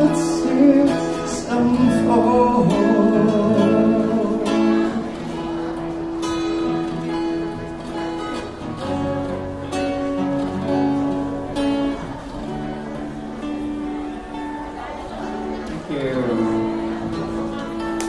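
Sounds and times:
acoustic guitar strumming chords: 0:00.0 - 0:18.0.

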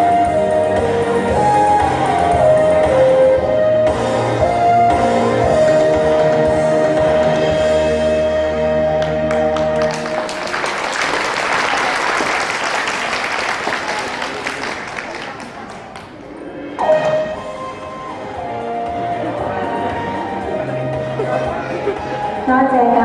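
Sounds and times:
dance song: 0:00.0 - 0:10.4
audience applause: 0:09.0 - 0:16.2.

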